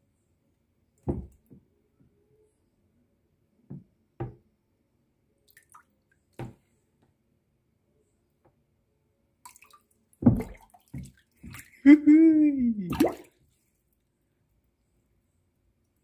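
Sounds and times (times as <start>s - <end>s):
water splashing in plastic tub: 9.5s - 11.9s, 12.7s - 13.5s.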